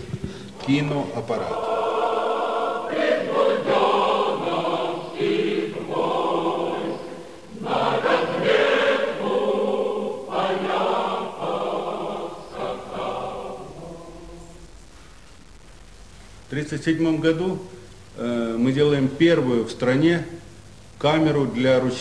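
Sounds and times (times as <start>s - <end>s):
choir singing: 0.0s - 14.7s.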